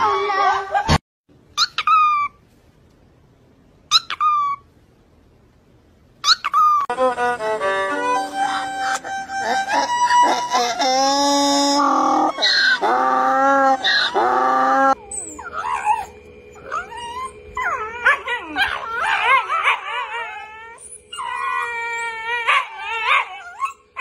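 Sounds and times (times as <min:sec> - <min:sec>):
dogs whining yipping and howling: 0:00.0 - 0:01.0, 0:01.6 - 0:02.4, 0:03.9 - 0:04.7, 0:06.2 - 0:06.9, 0:08.2 - 0:24.0
donkey braying: 0:06.9 - 0:20.5.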